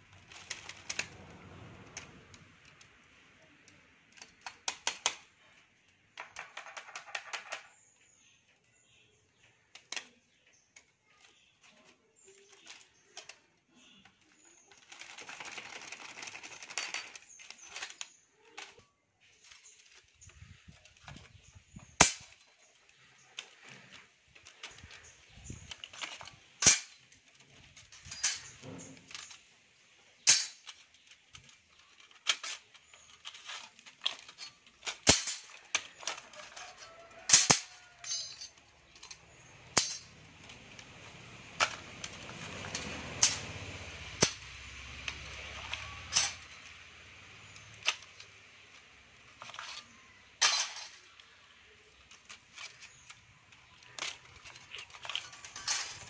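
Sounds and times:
metal laminations clicking: 11.8 - 56.0.

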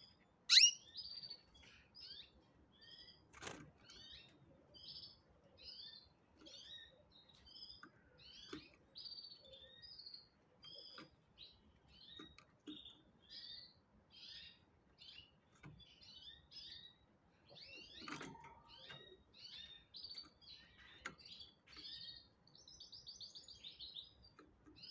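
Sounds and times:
canaries chirping and twittering: 0.3 - 24.9.

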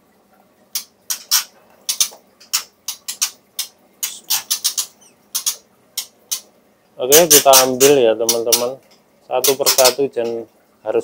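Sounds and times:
bird alarm calls clicking: 1.9 - 6.5.

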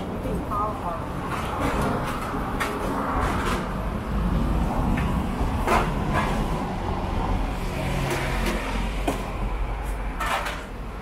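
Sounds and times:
road traffic rumble: 0.0 - 11.0
knocks and clatters: 8.0 - 10.8.

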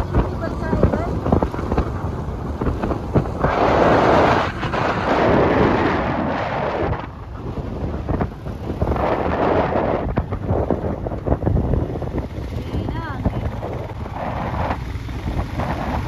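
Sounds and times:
road and engine rumble: 0.0 - 16.0
wind buffeting microphone: 0.0 - 16.0.

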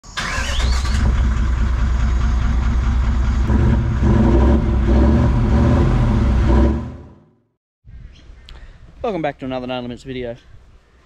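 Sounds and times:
vehicle engine running: 1.0 - 7.2.

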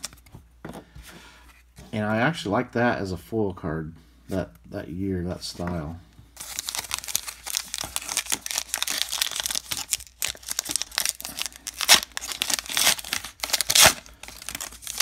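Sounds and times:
plastic wrapper crinkling: 6.4 - 15.0
wrapper ripping: 6.4 - 15.0.

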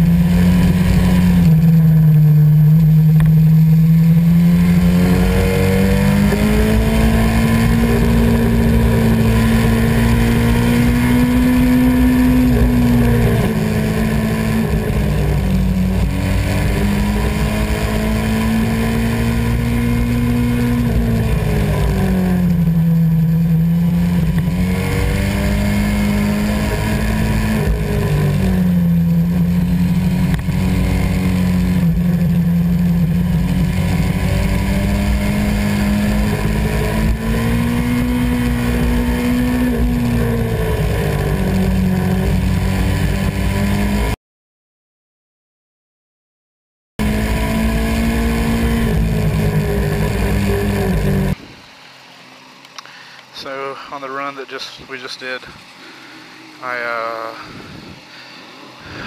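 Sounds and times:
motorcycle engine revving: 0.0 - 44.2, 47.0 - 51.7, 52.7 - 59.0
wind rush: 57.4 - 58.1.

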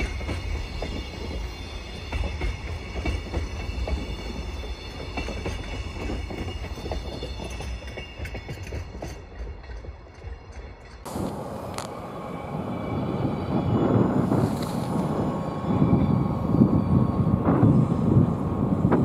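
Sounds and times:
wheels clicking over rail joints: 0.0 - 12.0
train rumbling past: 0.0 - 19.0.

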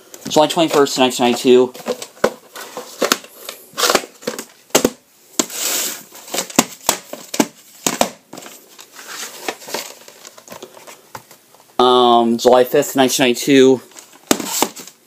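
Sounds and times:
plastic cases clicking and knocking: 1.7 - 5.5, 6.2 - 8.6
rustling: 8.3 - 11.4.

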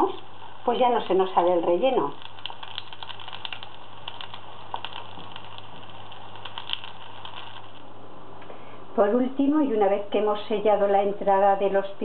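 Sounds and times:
hot oil sizzling and popping: 0.0 - 7.9.

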